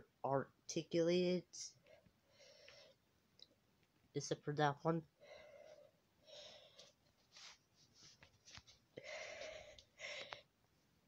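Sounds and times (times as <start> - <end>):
faint breathing: 1.8 - 3.1, 5.1 - 7.0, 8.9 - 10.6.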